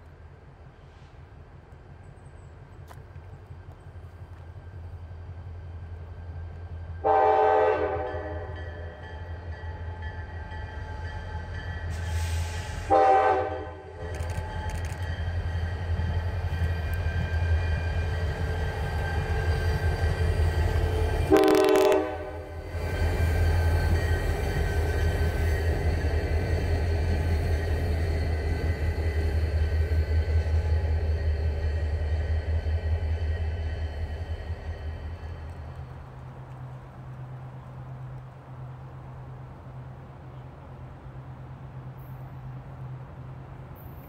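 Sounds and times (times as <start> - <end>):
diesel locomotive engine drone: 0.0 - 44.0
locomotive horn blasts: 7.0 - 8.9, 12.9 - 14.0, 21.2 - 22.6.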